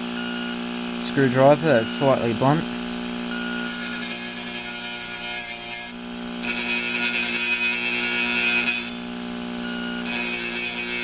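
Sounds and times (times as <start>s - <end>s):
hard drive humming: 0.0s - 4.7s.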